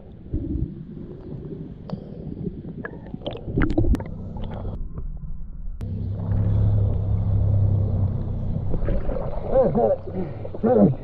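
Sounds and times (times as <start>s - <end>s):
muffled underwater rumble: 0.0s - 11.0s
knocks and splashes: 6.2s - 11.0s.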